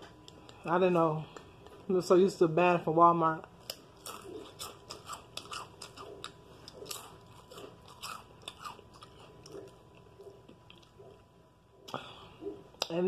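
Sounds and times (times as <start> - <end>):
potato chips crunching: 3.6 - 11.0.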